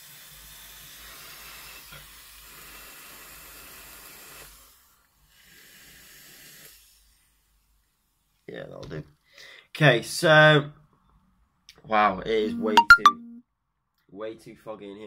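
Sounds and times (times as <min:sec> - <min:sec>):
hiss of air drawn through vape: 0:00.6 - 0:07.3.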